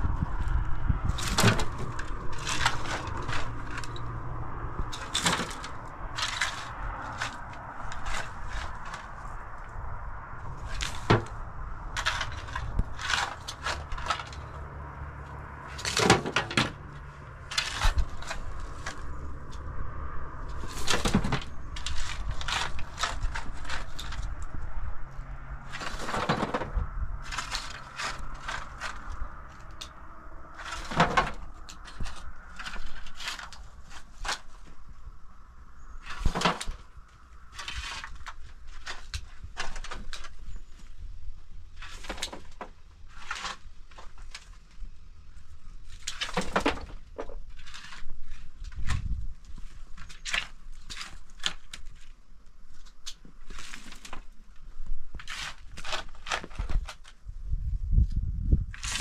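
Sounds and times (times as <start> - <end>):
shovel scraping dirt and stones: 0.0 - 57.3, 58.7 - 59.0
stones clattering: 1.1 - 4.1.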